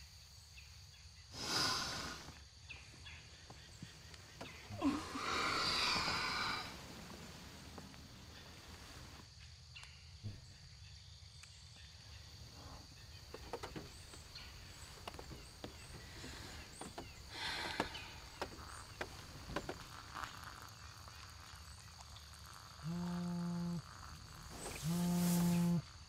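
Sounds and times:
high insect drone: 0.0s - 26.0s
burst of noise: 4.4s - 9.1s, 13.5s - 25.9s.

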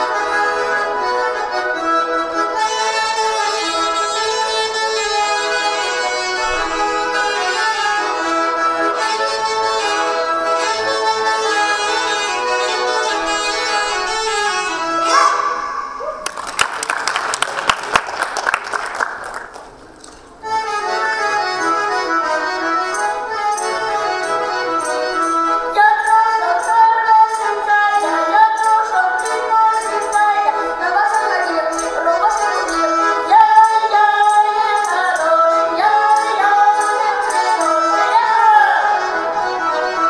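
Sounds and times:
button accordion folk tune: 0.0s - 15.6s, 20.4s - 40.0s
applause: 16.2s - 20.1s
girl singing folk song: 25.3s - 39.9s.

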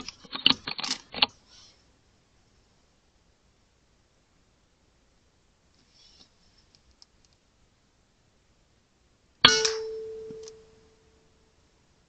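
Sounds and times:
air rifle shot: 9.5s - 10.0s.

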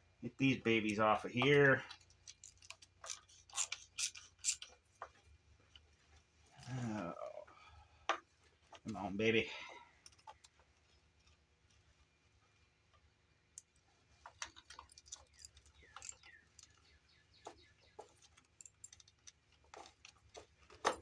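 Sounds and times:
hand ratchet clicking: 2.3s - 4.8s.

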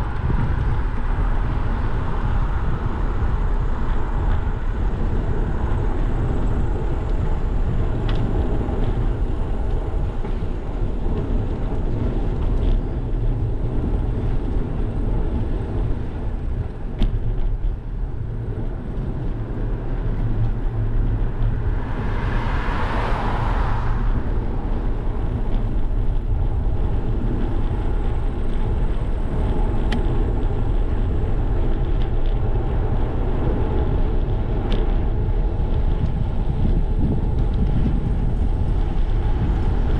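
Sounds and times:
wind rushing over microphone: 0.0s - 39.9s
vehicle passing: 19.0s - 27.8s.

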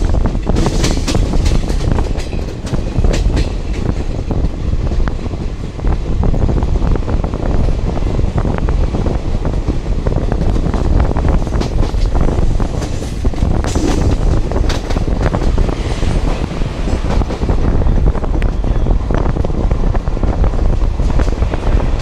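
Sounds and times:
wheels clicking over rail joints: 0.0s - 5.5s
train wheels rumbling on rails: 0.0s - 22.0s
wind buffeting microphone: 0.0s - 22.0s.

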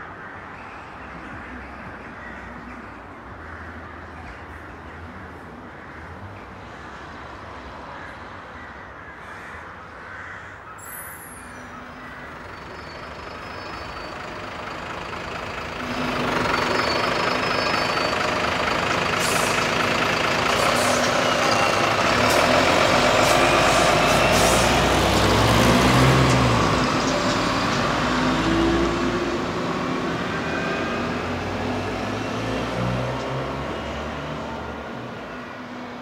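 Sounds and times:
truck diesel engine approaching: 12.3s - 36.0s.

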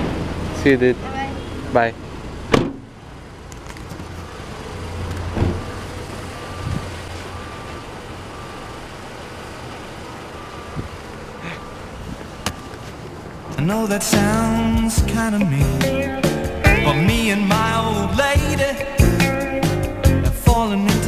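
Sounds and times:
car idling: 0.0s - 21.0s
car door shutting: 2.5s - 2.9s, 5.2s - 5.8s, 6.6s - 6.9s
car warning chime beeping: 5.6s - 12.9s.

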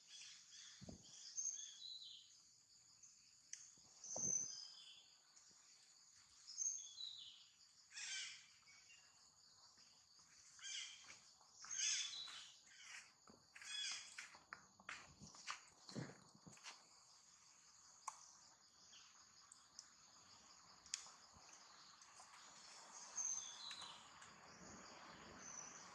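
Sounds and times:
bird chirps: 0.0s - 2.3s, 3.9s - 5.2s, 6.4s - 9.2s, 10.5s - 14.3s, 21.6s - 25.9s
insect drone: 0.0s - 25.9s.

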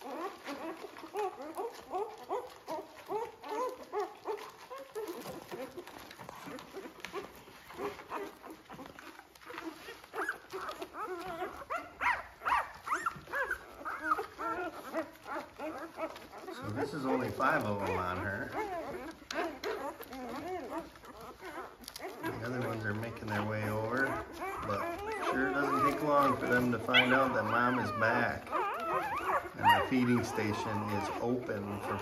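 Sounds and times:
puppies squeaking and whimpering: 0.0s - 32.0s.

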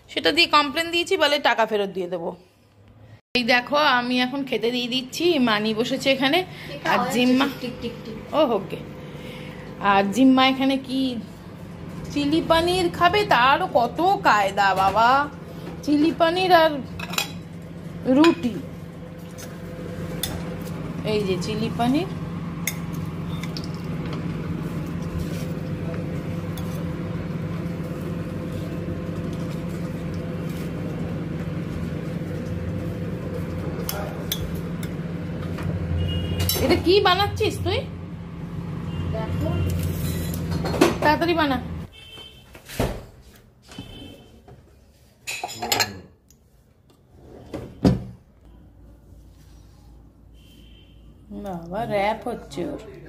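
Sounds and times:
mechanical hum: 0.0s - 53.0s
metal spoon clinking on bowls: 17.0s - 17.4s, 45.3s - 46.1s.

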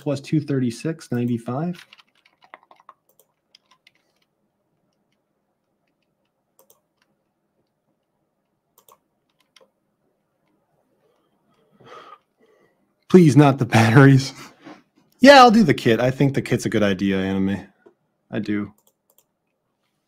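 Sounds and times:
typing on computer keyboard: 1.3s - 4.3s, 5.8s - 7.1s, 8.8s - 9.7s.

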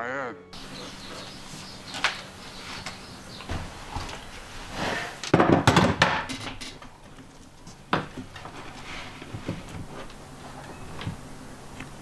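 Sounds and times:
tools knocking on wooden workbench: 5.3s - 6.6s.

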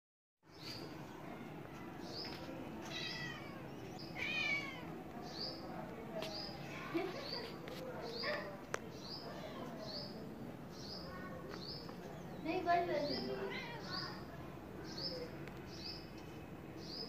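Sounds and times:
kittens mewing: 2.8s - 4.9s.

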